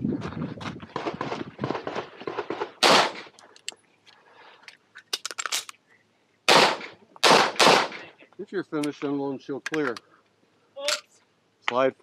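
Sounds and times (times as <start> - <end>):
pistol shots: 1.8 - 3.3, 6.5 - 8.1.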